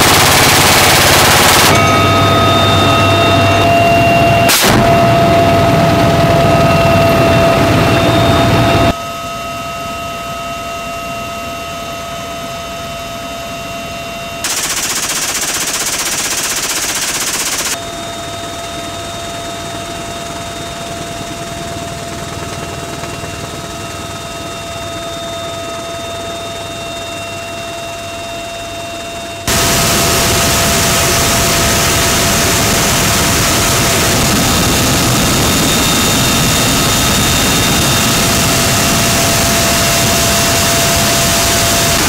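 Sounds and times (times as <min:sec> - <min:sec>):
machine gun burst: 0:00.0 - 0:01.8, 0:14.4 - 0:17.8
helicopter turbine whine: 0:00.0 - 0:42.0.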